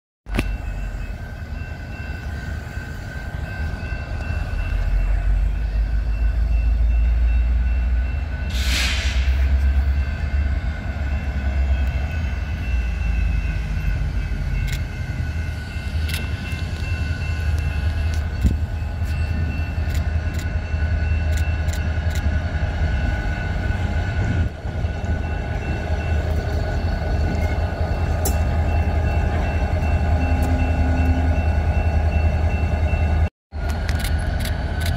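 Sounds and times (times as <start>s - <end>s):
diesel locomotive engine rumbling: 0.2s - 34.9s
crossing warning bell ringing: 0.3s - 34.9s.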